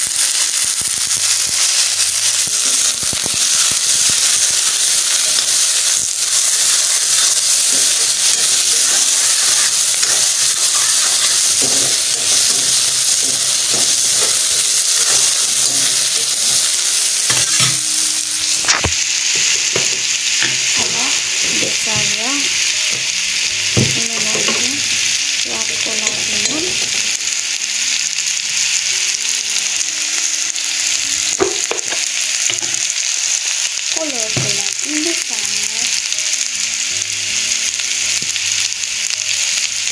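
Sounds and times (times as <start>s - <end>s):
onion and garlic sizzling in oil: 0.0s - 39.9s
spatula scraping a pan: 6.4s - 12.6s.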